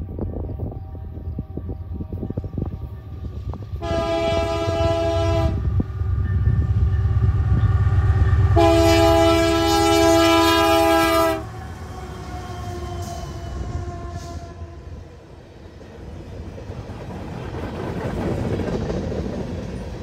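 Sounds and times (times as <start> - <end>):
locomotive engine rumble: 0.0 - 20.0
locomotive air horn blasts: 3.8 - 5.7, 8.5 - 15.0.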